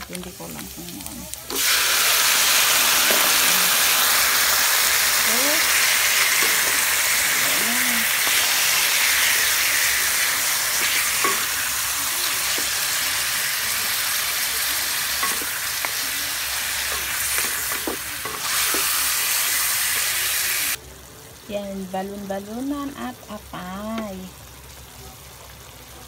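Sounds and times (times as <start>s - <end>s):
food sizzling in a pan: 0.0s - 26.0s.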